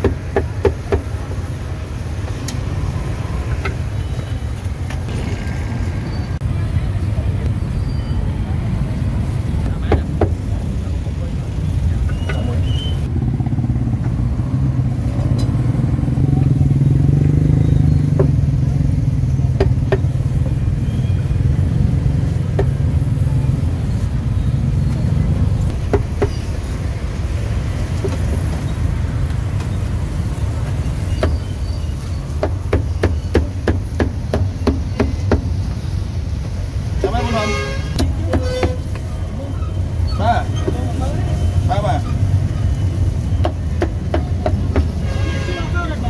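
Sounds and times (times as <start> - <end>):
motorcycle engine rumble: 0.0 - 31.7.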